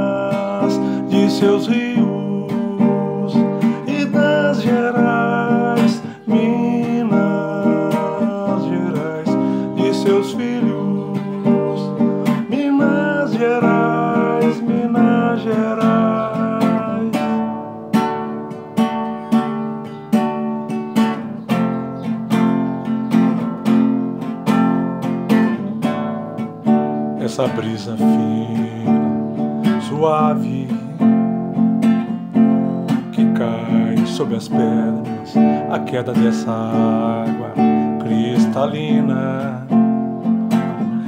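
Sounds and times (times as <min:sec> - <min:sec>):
acoustic guitar strumming: 0:00.0 - 0:41.0.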